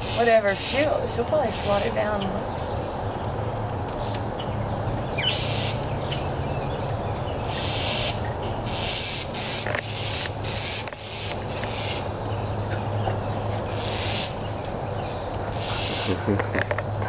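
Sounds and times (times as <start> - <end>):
bird harsh rasping calls: 0.0 - 3.1, 5.1 - 6.4, 7.1 - 16.5
bird chirps: 3.8 - 17.0.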